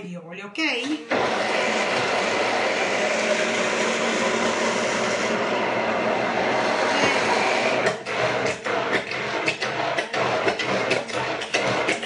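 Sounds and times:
immersion blender running: 0.9s - 12.0s.

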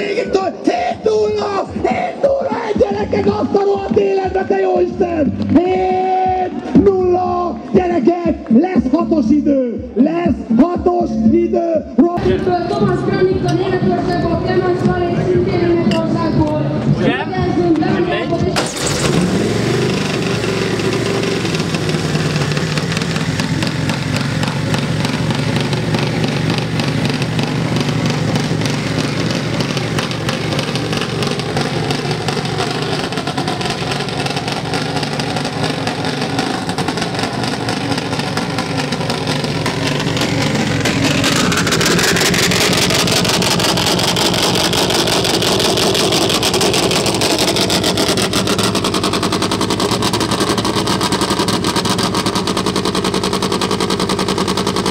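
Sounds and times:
motorcycle engine idling: 18.4s - 54.9s
rising whine: 18.6s - 52.5s.

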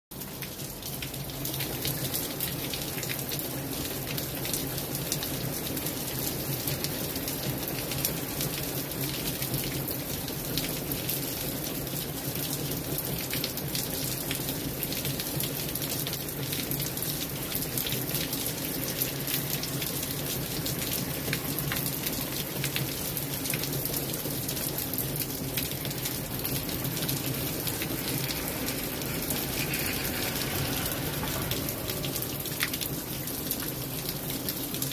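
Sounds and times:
steady rainfall: 0.1s - 34.9s.

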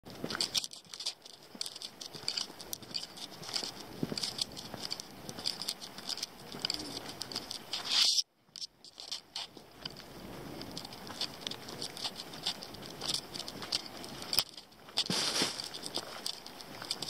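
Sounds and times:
footsteps crunching on dry leaves: 13.7s - 16.8s.

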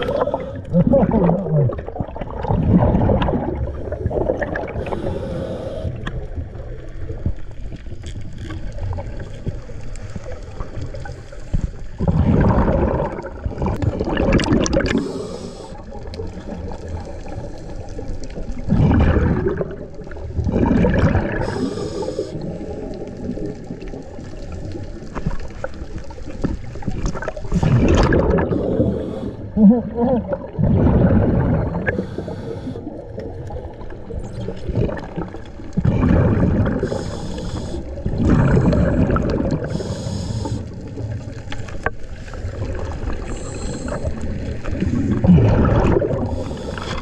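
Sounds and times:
bubbling bursts of exhaled air: 0.0s - 6.6s, 10.2s - 25.0s, 26.3s - 41.4s, 42.2s - 47.0s
high hisses of inhaled air: 15.0s - 15.8s, 21.4s - 22.4s, 31.9s - 32.8s, 36.8s - 37.8s, 39.7s - 40.7s.

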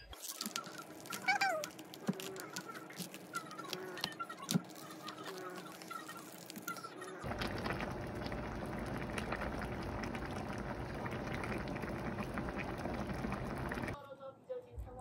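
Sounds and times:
soup boiling in a pot: 0.2s - 4.0s, 4.6s - 14.0s.

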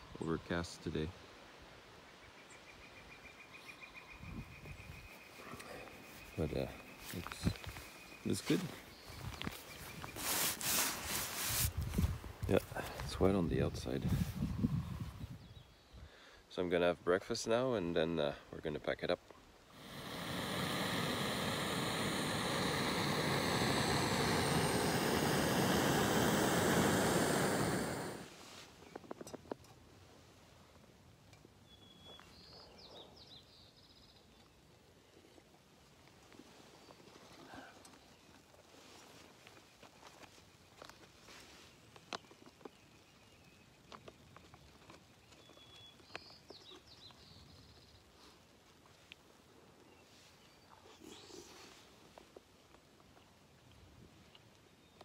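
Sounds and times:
bird singing: 2.1s - 10.2s, 31.6s - 34.6s, 45.1s - 48.1s
gas stove hissing: 19.8s - 28.3s.

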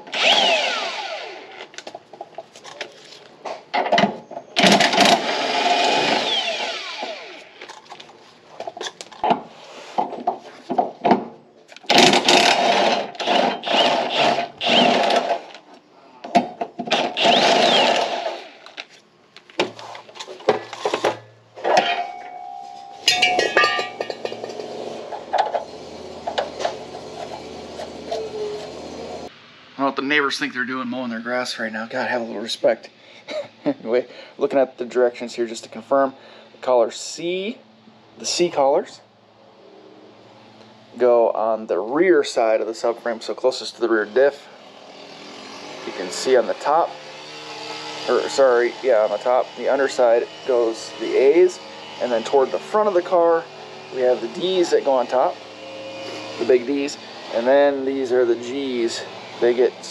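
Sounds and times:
impact wrench hammering: 21.6s - 25.6s
metal clinks: 21.8s - 24.7s.

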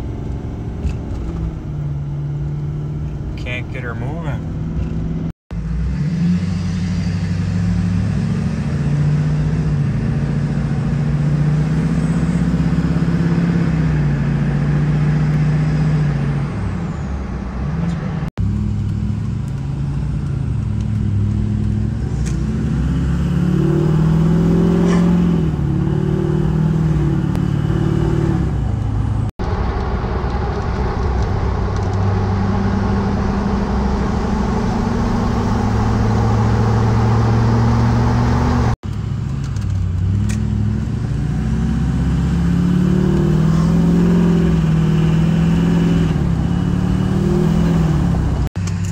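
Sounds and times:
diesel truck engine accelerating: 0.0s - 48.9s.

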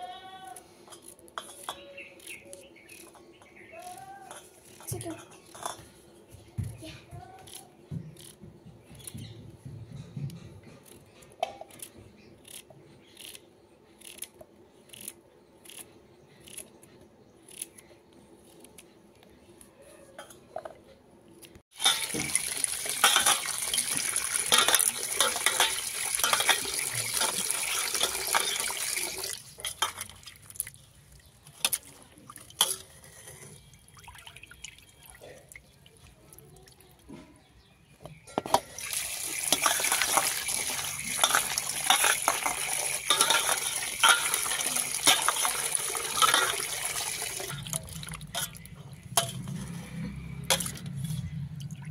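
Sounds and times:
tap water running into steel bowl: 21.7s - 30.7s, 38.5s - 49.5s.

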